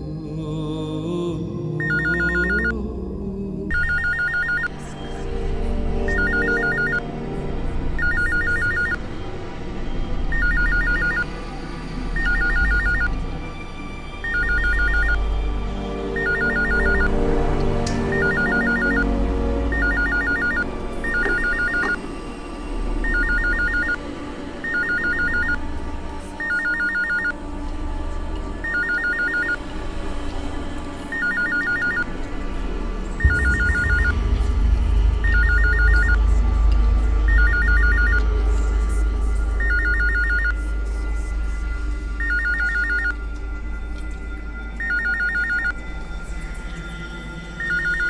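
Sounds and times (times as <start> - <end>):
background music: 0.0 - 48.0
mobile phone ringing: 1.8 - 2.7, 3.7 - 4.7, 6.1 - 7.0, 8.0 - 9.0, 10.3 - 11.3, 12.2 - 13.1, 14.2 - 15.2, 16.2 - 17.1, 18.1 - 19.1, 19.7 - 22.0, 23.0 - 24.0, 24.6 - 25.6, 26.4 - 27.4, 28.6 - 29.6, 31.1 - 32.1, 33.2 - 34.2, 35.2 - 36.2, 37.3 - 38.2, 39.6 - 40.6, 42.2 - 43.2, 44.8 - 45.8, 47.6 - 48.0.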